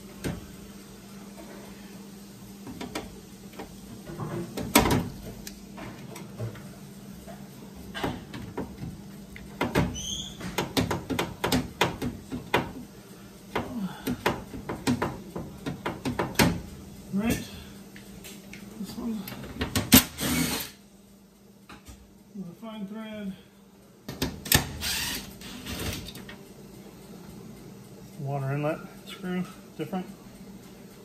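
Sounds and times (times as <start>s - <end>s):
hands tapping on sheet metal: 10.5s - 12.8s, 13.6s - 16.6s.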